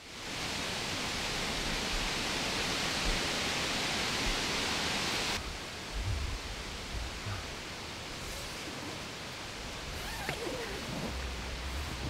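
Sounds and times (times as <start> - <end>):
rain falling: 0.0 - 12.0
soft low thuds: 5.9 - 7.6.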